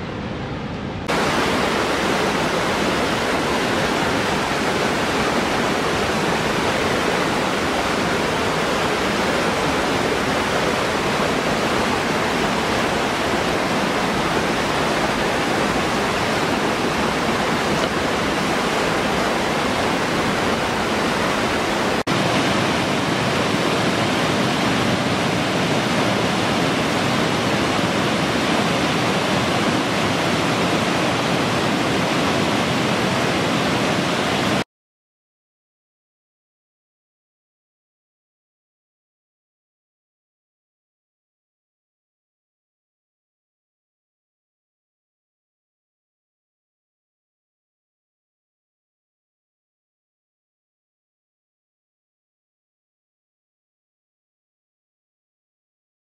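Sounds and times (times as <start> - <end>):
waterfall rushing over rocks: 1.0 - 34.6.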